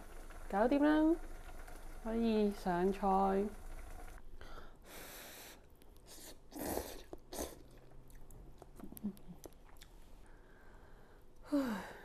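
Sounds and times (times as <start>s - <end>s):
quiet chewing: 6.9s - 10.2s.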